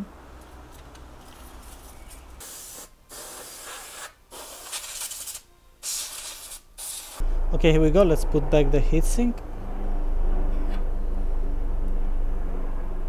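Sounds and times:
compressed air duster hissing: 2.4 - 7.2.

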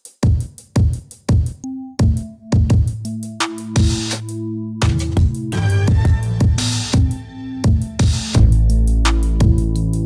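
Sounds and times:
deep drum machine bass hits: 4.8 - 9.8.

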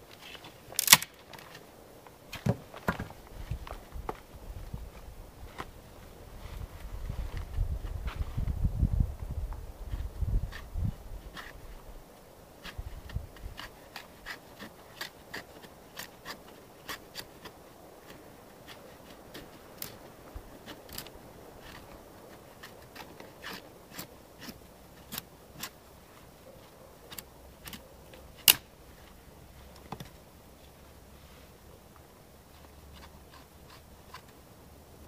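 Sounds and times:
sharp loud click: 0.8 - 1.2
knife shaving wood: 9.8 - 28.6, 32.5 - 34.5.

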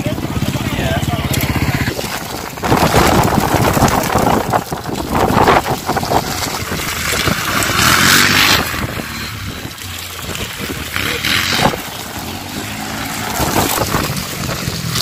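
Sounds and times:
quad engine revving: 0.0 - 15.0.

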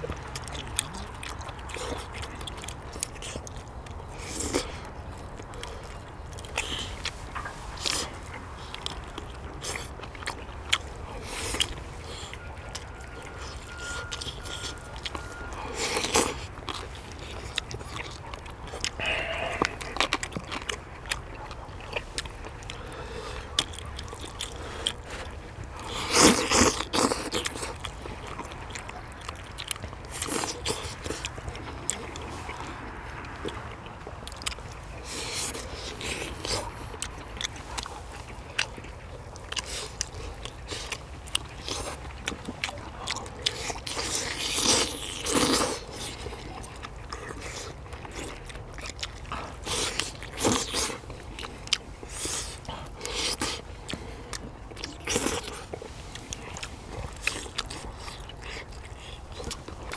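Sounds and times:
people chewing with wet mouth sounds: 0.0 - 59.9.

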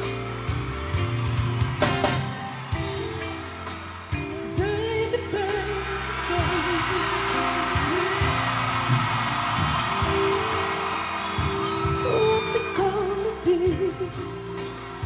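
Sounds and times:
man singing: 4.4 - 8.7, 11.9 - 14.6.

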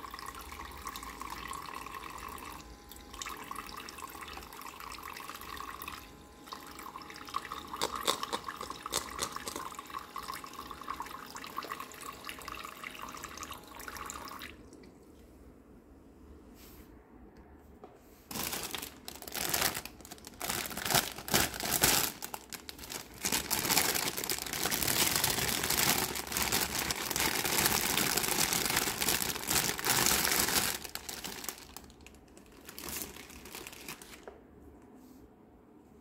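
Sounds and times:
plastic wrapping crinkling and tearing: 7.6 - 9.6, 18.3 - 34.3.

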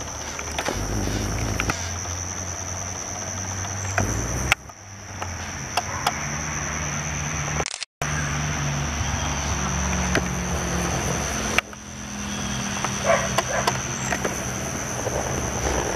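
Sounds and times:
short loud insect calls: 0.0 - 6.9
high-pitched insect drone: 0.0 - 7.6, 8.9 - 15.9.

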